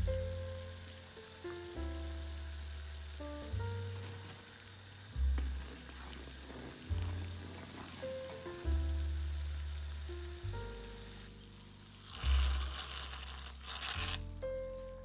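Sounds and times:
background music: 0.0 - 15.0
water boiling in a pot: 0.0 - 15.0
wooden spoon stirring: 5.4 - 8.6, 12.0 - 14.6.

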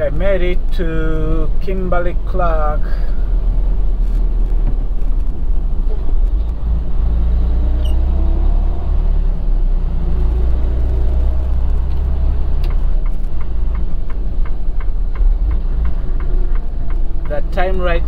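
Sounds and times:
road noise inside cab: 0.0 - 18.0
truck diesel engine rumble: 0.0 - 18.0
turn signal ticking: 10.1 - 18.0.

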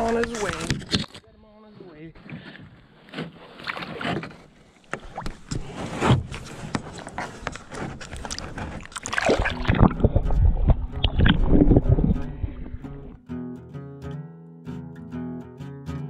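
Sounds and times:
muffled underwater rumbling: 7.0 - 13.2
water splashing around a hand: 7.5 - 12.8.

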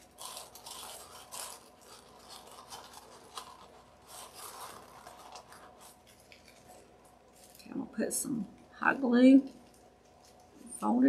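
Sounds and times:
paper filters rustling: 0.0 - 7.7.

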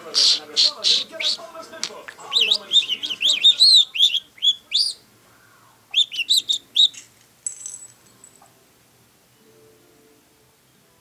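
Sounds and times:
budgerigar whistling chirpy notes: 2.3 - 5.0, 5.9 - 7.0.

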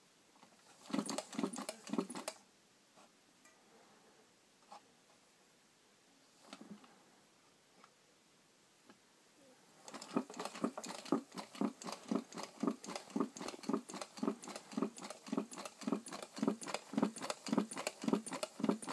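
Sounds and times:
engine knocking rhythmically: 9.9 - 18.9.

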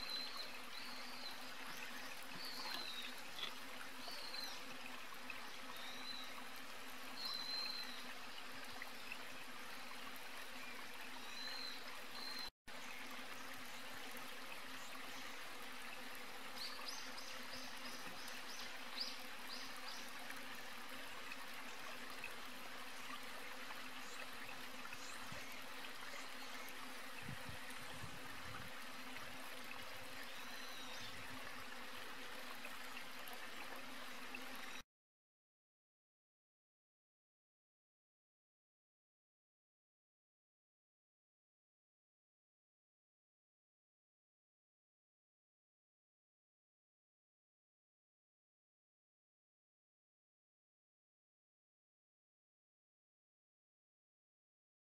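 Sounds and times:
steady outdoor hiss: 0.0 - 34.8.

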